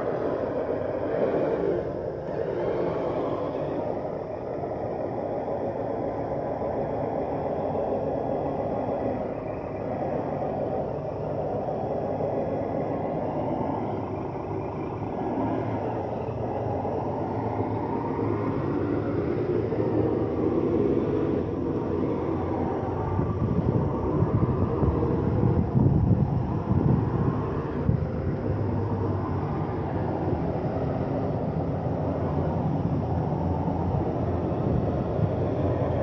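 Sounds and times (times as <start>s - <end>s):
rc car running: 0.0s - 25.8s.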